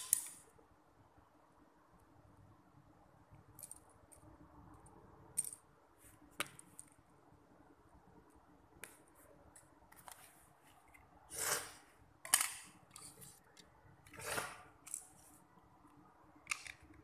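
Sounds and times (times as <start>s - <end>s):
plastic bricks clicking on tiles: 16.4s - 17.0s.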